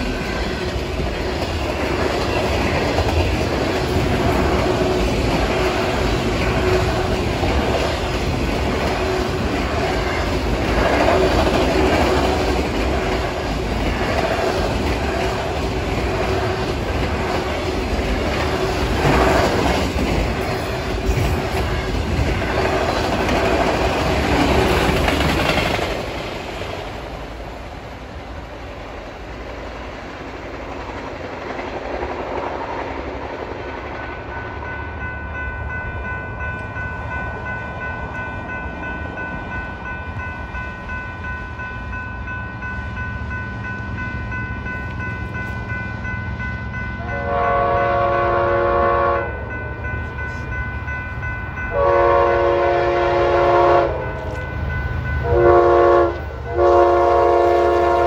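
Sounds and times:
freight train rolling past: 0.0s - 58.0s.

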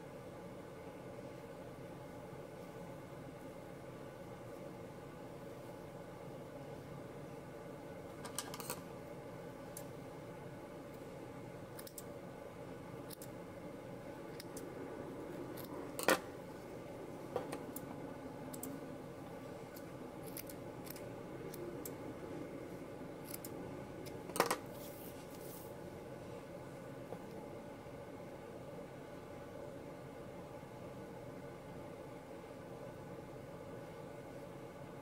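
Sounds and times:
scissors snipping yarn: 11.7s - 12.1s, 13.1s - 13.4s, 19.7s - 21.6s, 23.2s - 24.2s.

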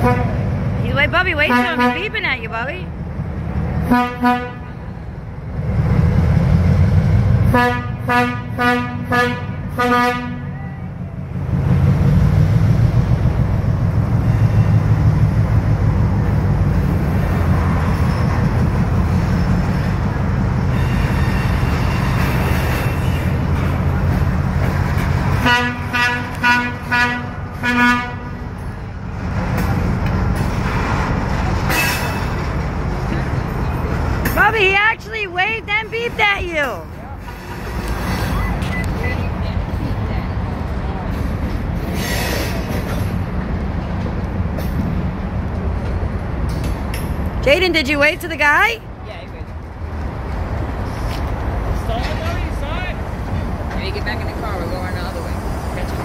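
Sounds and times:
locomotive engine rumble: 0.0s - 56.0s
locomotive horn short toots: 3.8s - 4.7s, 7.5s - 10.6s, 25.3s - 28.4s.

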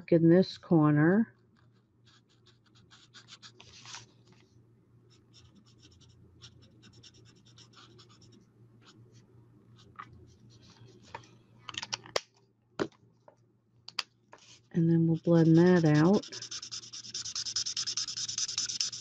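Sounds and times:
marker scratching on paper: 5.2s - 9.0s, 14.4s - 19.0s.

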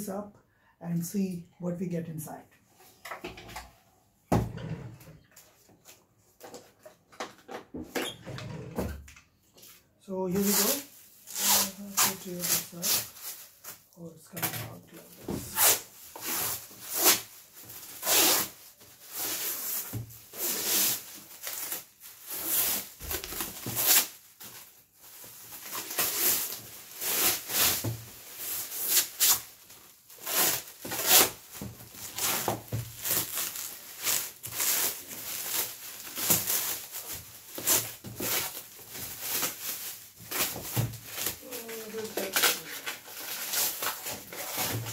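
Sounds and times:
plastic wrap crinkling: 14.7s - 44.9s.

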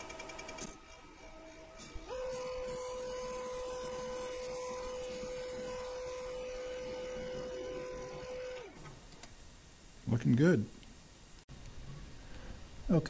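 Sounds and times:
lathe whining: 0.0s - 9.4s.

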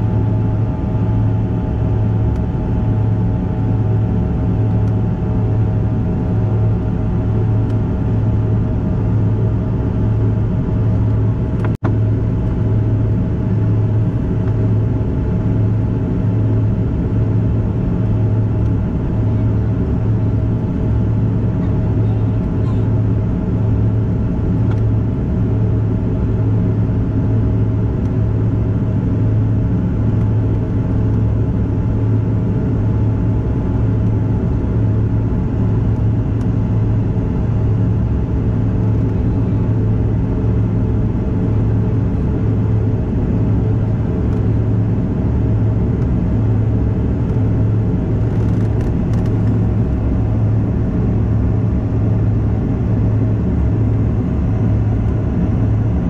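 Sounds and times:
aircraft cabin drone: 0.0s - 56.0s.

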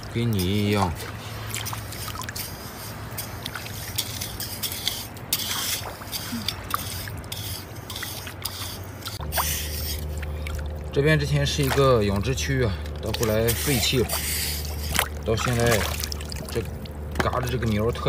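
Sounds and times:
digging in wet sand: 0.0s - 18.0s
shallow water trickling and splashing: 0.0s - 18.0s.

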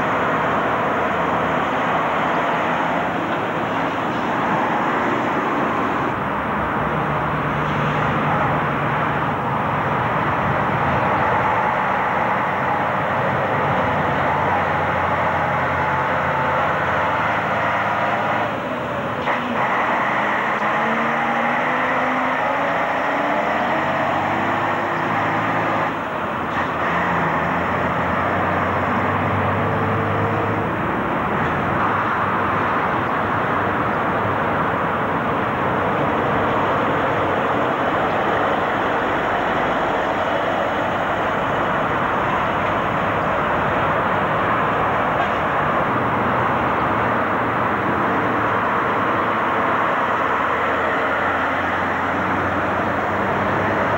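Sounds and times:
lorry engines pulling away: 0.0s - 53.9s
traffic drone: 0.0s - 53.9s.

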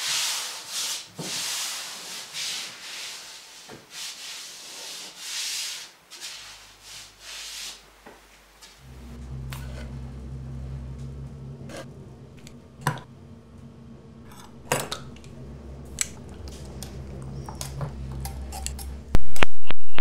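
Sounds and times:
low electrical hum: 6.4s - 19.3s.

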